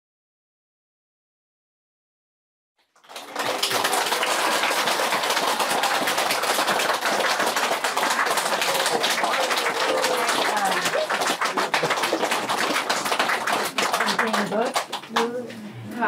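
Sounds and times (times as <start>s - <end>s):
crowd applauding: 2.8s - 15.4s.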